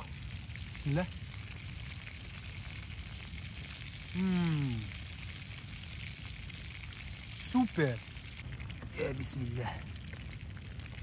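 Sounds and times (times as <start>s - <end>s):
fish frying in a pan: 0.0s - 11.0s
man humming: 4.2s - 4.9s.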